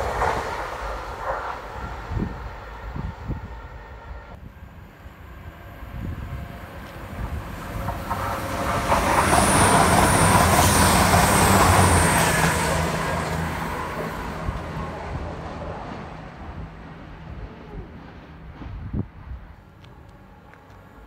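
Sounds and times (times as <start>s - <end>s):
train wheels on rails: 0.0s - 4.3s, 5.0s - 17.2s
diesel train engines droning: 0.0s - 21.0s.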